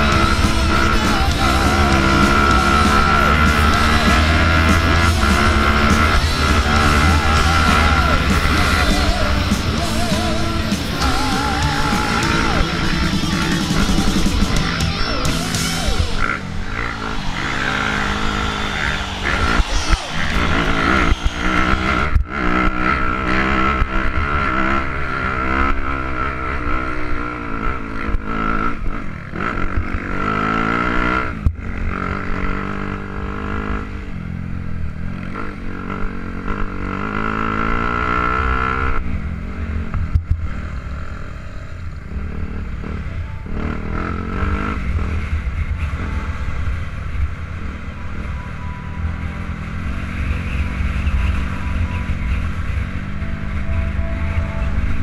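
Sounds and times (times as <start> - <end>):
steady high-pitched whine: 0.0 - 23.3
dirt bike engines revving: 0.0 - 55.0.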